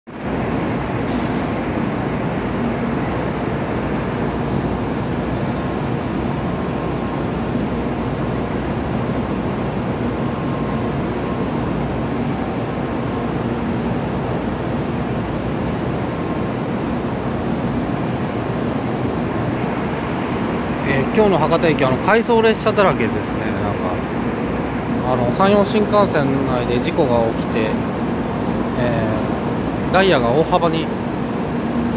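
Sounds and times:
trains humming in station: 0.1 - 31.9
brief high hiss: 1.1 - 1.7.

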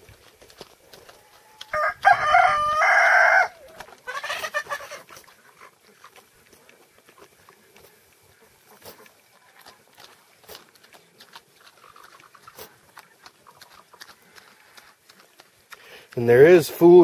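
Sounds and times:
pig chewing food: 0.0 - 17.0
rooster crowing: 1.4 - 3.8.

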